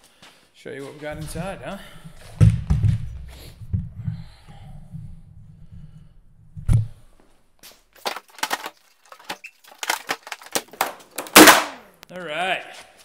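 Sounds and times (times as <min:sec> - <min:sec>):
wooden cracks and knocks: 0:08.0 - 0:11.8.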